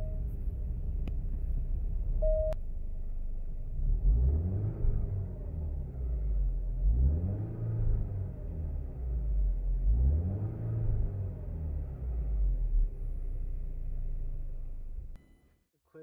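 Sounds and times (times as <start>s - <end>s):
short beep: 2.2s - 2.6s
car engine revving: 3.7s - 15.1s.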